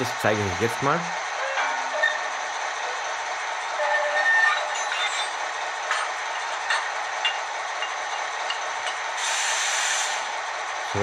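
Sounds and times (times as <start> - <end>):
diesel locomotive engine from small speaker: 0.0 - 11.0
hiss: 9.2 - 10.3.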